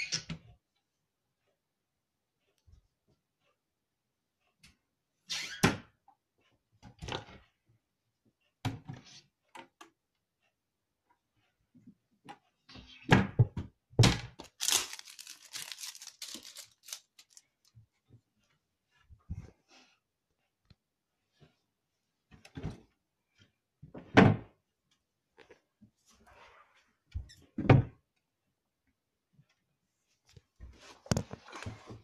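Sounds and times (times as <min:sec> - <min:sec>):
rustling scrape: 0:14.6 - 0:17.5.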